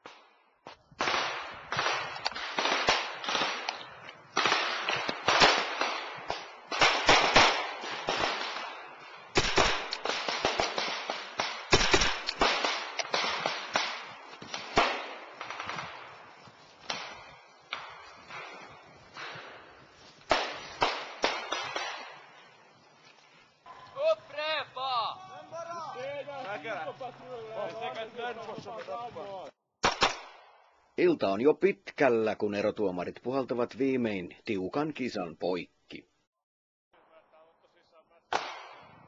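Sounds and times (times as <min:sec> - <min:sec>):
rifle gunfire echoing: 0:01.0 - 0:22.5, 0:29.8 - 0:30.6.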